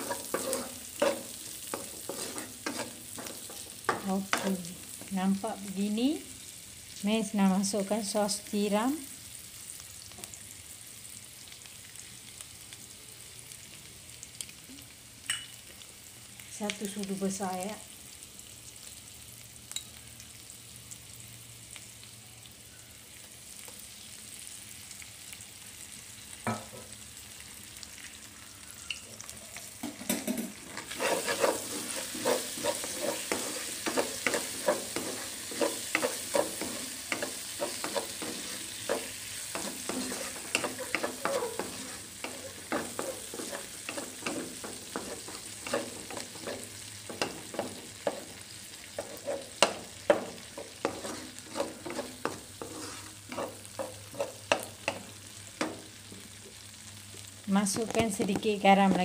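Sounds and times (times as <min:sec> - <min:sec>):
wooden spatula scraping a pan: 0:00.0 - 0:05.1, 0:30.3 - 0:55.8
food sizzling in butter: 0:00.0 - 0:59.0.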